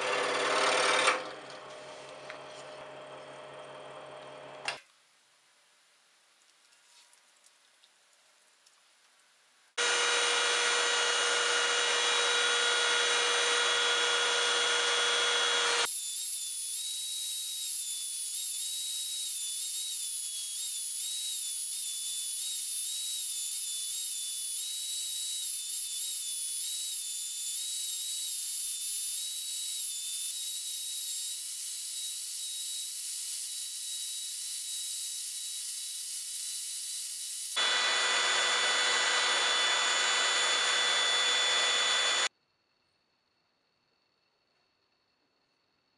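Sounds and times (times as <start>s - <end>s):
belt sander sanding wood: 9.8s - 15.9s, 36.4s - 42.3s.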